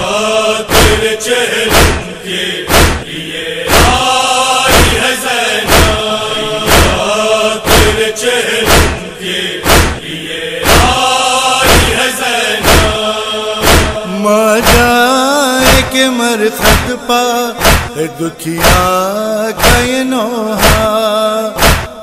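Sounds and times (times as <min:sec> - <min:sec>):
voices chanting: 0:00.0 - 0:18.9
chest-beating thumps: 0:00.7 - 0:01.1, 0:01.7 - 0:04.1, 0:04.7 - 0:14.0, 0:14.6 - 0:15.0, 0:15.6 - 0:16.0, 0:16.6 - 0:17.0, 0:17.6 - 0:18.0, 0:18.6 - 0:19.0, 0:19.6 - 0:20.0, 0:20.6 - 0:21.0, 0:21.6 - 0:22.0.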